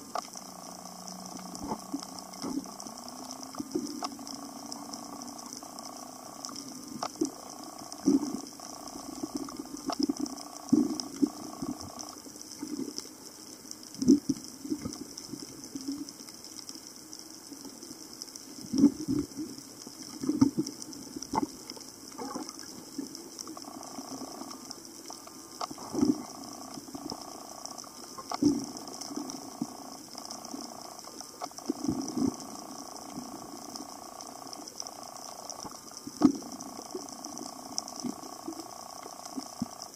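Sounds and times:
faint wavering hum: 0:00.0 - 0:39.9.

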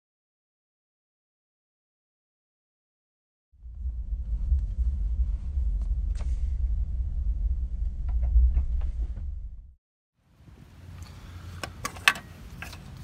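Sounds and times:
road rumble inside car: 0:03.6 - 0:09.8.

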